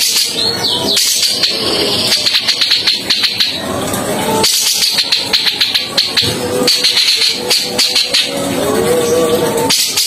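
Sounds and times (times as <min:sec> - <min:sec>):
bird harsh chatter: 0:00.0 - 0:03.7, 0:04.4 - 0:08.4.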